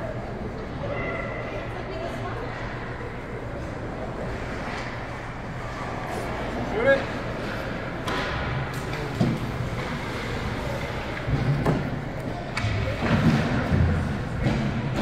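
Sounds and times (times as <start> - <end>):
hockey sticks and puck knocks: 8.0 - 15.0.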